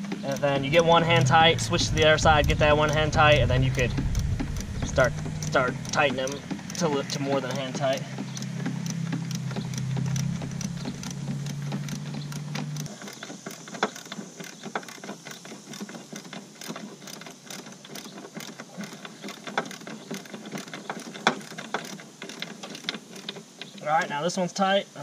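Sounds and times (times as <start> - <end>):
low steady hum: 0.0 - 13.4
ratchet wrench clicking: 0.0 - 23.7.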